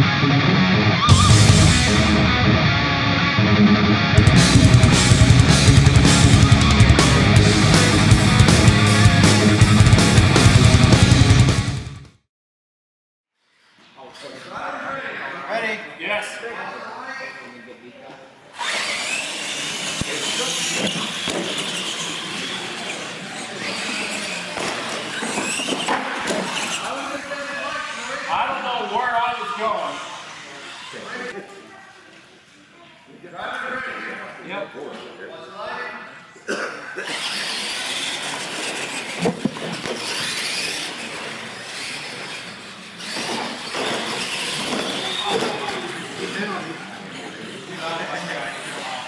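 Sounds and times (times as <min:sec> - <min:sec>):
toy truck motors whining: 0:18.5 - 0:32.6, 0:37.0 - 0:49.0
tyres running on concrete: 0:18.6 - 0:28.4, 0:37.0 - 0:49.0.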